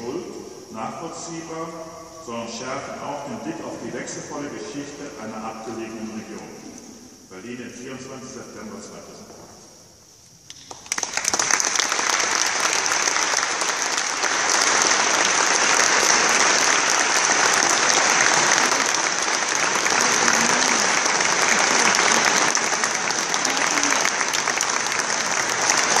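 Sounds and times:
audience applauding: 10.5s - 26.0s.

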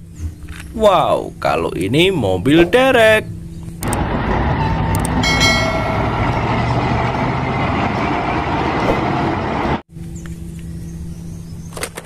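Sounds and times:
truck crane engine and tyres: 3.2s - 12.0s.

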